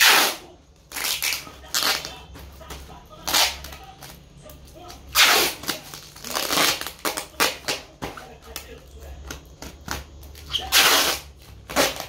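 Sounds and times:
packing tape ripping off roll: 0:00.0 - 0:02.2, 0:03.2 - 0:04.1, 0:05.1 - 0:07.8, 0:09.9 - 0:12.0.

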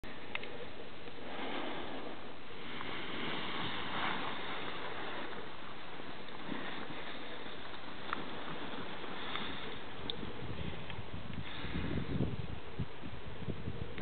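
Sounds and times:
faint sharp click: 0:00.3 - 0:01.2
wind rushing over microphone: 0:01.2 - 0:14.0.

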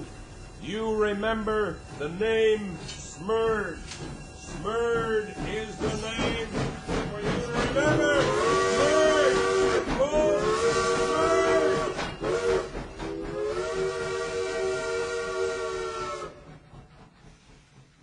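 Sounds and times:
hiss of steam: 0:00.0 - 0:18.0
steam locomotive whistle blasts: 0:07.3 - 0:16.7.

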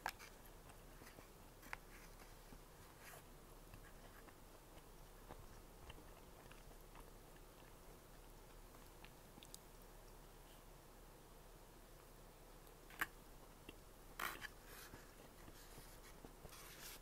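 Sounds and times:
soft chewing mouth clicks: 0:03.7 - 0:07.8, 0:08.5 - 0:10.2.

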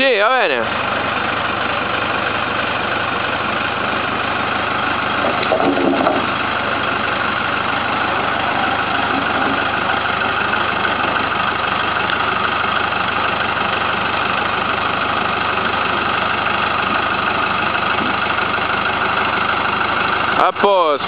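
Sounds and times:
tractor engine running: 0:00.0 - 0:21.0
wooden poles sliding onto ground: 0:05.1 - 0:07.0, 0:07.7 - 0:10.0.

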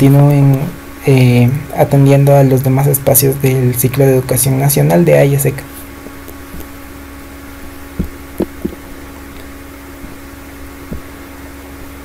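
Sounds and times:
electrical hum and hiss: 0:00.0 - 0:12.0
soft thumps: 0:08.0 - 0:08.9, 0:10.9 - 0:11.1.

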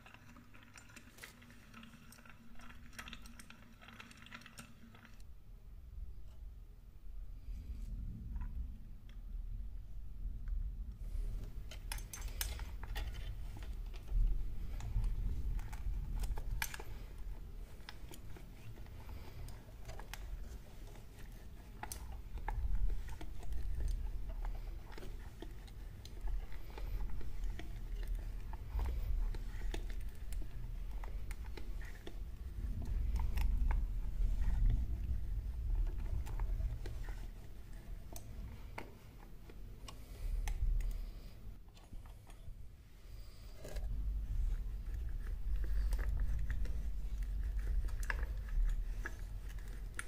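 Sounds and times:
steady low rumble: 0:05.3 - 0:20.8, 0:21.4 - 0:39.0, 0:42.5 - 0:50.0
metallic clicks and scrapes: 0:11.1 - 0:42.5.

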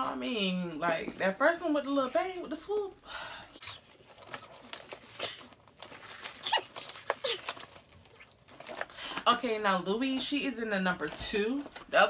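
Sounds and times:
rustling and crinkling: 0:03.8 - 0:12.0.

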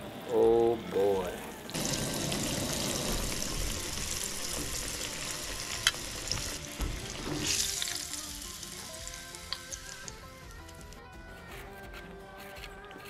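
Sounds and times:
fish frying in hot oil: 0:01.7 - 0:10.1.

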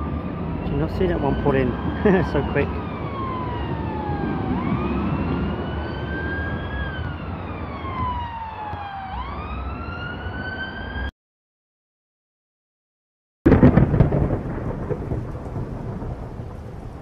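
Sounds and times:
emergency vehicle siren wailing: 0:00.0 - 0:11.1
low rumble of traffic: 0:00.0 - 0:11.1.

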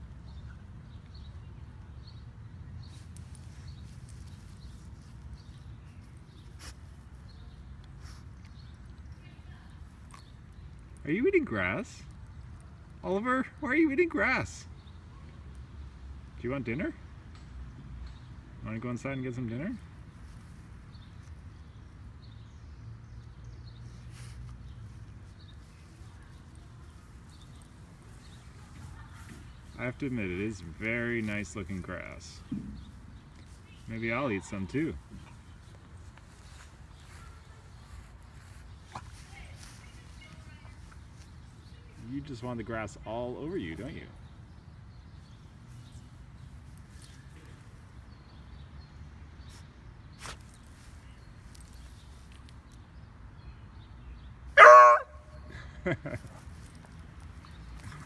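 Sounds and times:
rustle of grass: 0:02.8 - 0:10.3, 0:23.4 - 0:42.6, 0:49.4 - 0:52.8.

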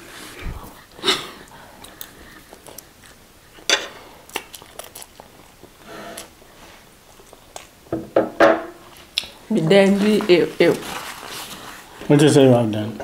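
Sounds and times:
chewing noodles: 0:01.8 - 0:03.2, 0:04.2 - 0:06.3.

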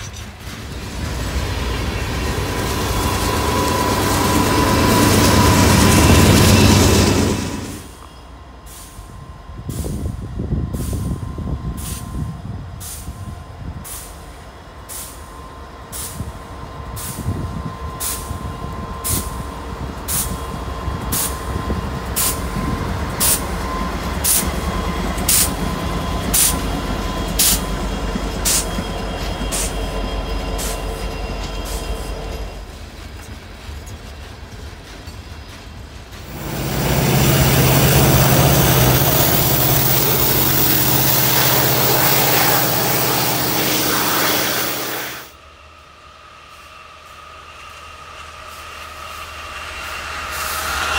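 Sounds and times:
diesel locomotive rumble: 0:00.0 - 0:50.9
faint steady squeal: 0:01.7 - 0:07.2, 0:15.2 - 0:32.8.

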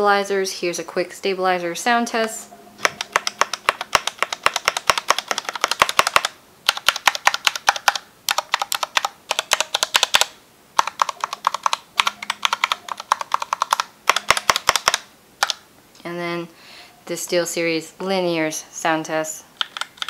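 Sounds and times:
mechanical keyboard keys clacking: 0:02.8 - 0:15.6, 0:19.6 - 0:20.0.

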